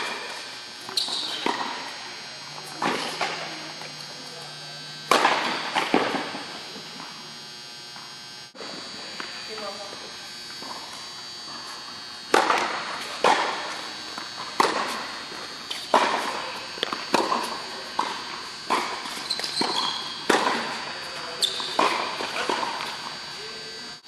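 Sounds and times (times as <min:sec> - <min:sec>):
tennis ball struck by rackets: 0:05.1 - 0:06.3, 0:12.3 - 0:13.7, 0:15.7 - 0:20.8.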